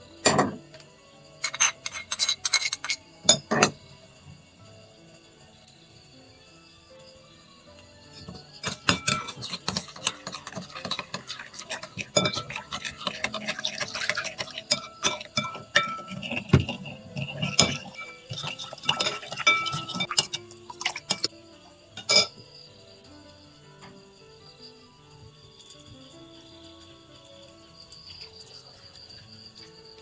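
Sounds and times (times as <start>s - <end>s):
metal spoon clinking in ceramic bowl: 1.4s - 3.8s, 8.2s - 21.3s, 22.0s - 22.4s.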